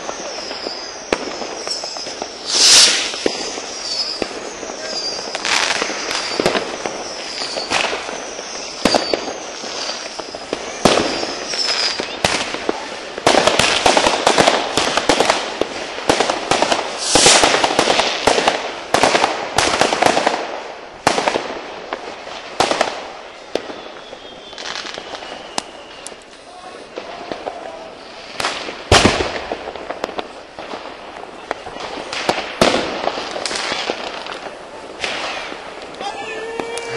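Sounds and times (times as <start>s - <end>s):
firework whistles: 0.0s - 20.4s, 21.9s - 30.5s, 31.3s - 36.9s
firecrackers crackling: 0.0s - 36.9s
firework bangs: 0.0s - 36.9s.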